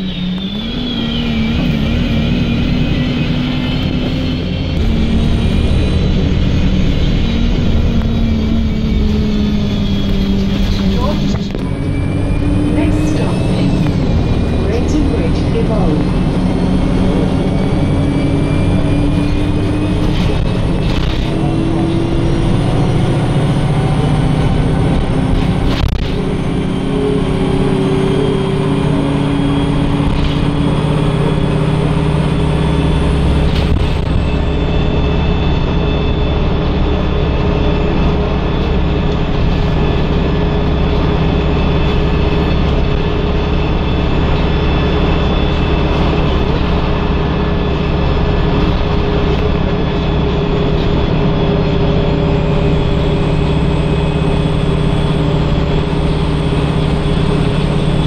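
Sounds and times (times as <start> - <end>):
bus engine and road rumble: 0.0 - 58.0
steady whining tones: 0.0 - 58.0.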